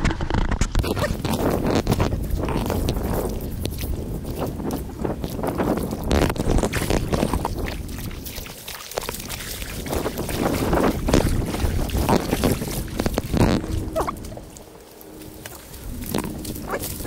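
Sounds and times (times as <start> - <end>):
wind buffeting microphone: 0.0 - 17.0
footsteps splashing through water: 0.7 - 17.0.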